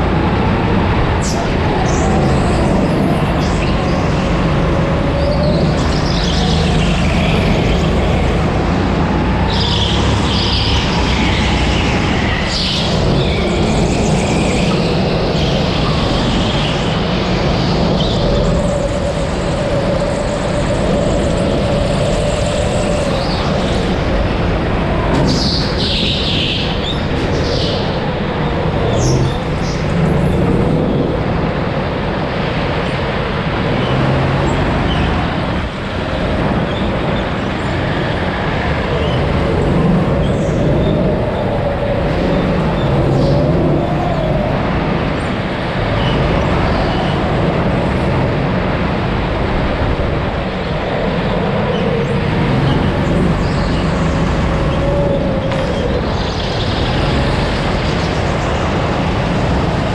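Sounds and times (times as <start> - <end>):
steady rush of noise: 0.0 - 59.9
go-kart engine revving: 51.2 - 59.9.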